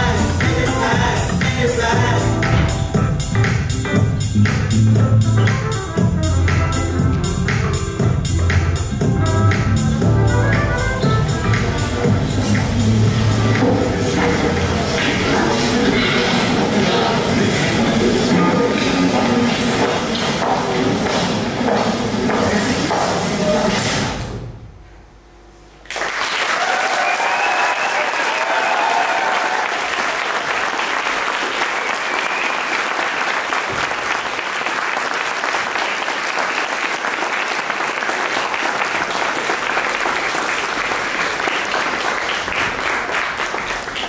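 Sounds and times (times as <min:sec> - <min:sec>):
music ending: 0:00.0 - 0:19.9
audience applauding: 0:25.9 - 0:44.0.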